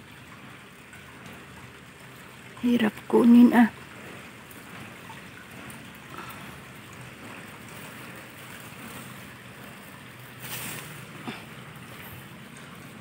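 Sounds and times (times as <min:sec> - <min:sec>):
rustle: 0:10.4 - 0:12.1.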